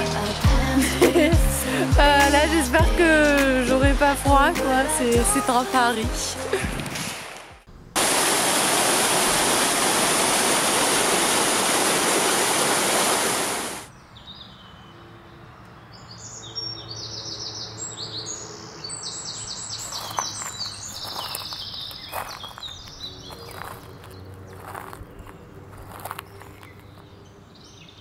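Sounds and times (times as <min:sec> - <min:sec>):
woodland ambience: 0:07.6 - 0:28.0
stream rushing over rocks: 0:08.0 - 0:13.9.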